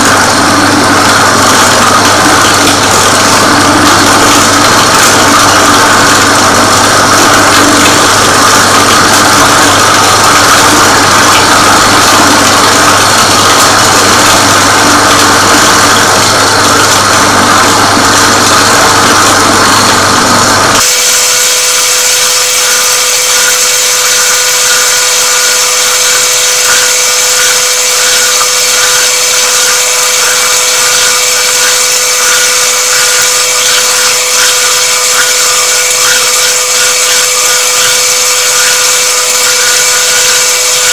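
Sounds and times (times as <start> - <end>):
bowl cutter chopping meat: 22.5 - 40.9.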